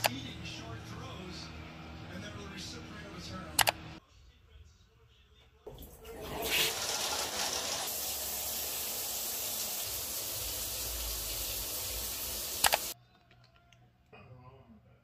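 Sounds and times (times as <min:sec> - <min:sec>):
shower water spraying: 0:05.7 - 0:13.0.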